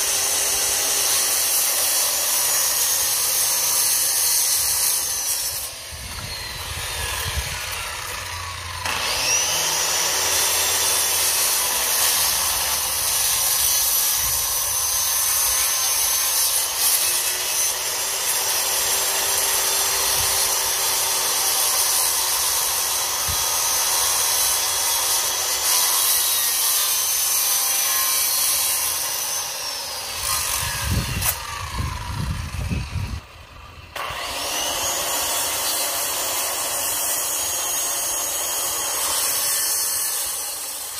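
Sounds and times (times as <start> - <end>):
electric saw cutting wood: 0.0 - 40.9.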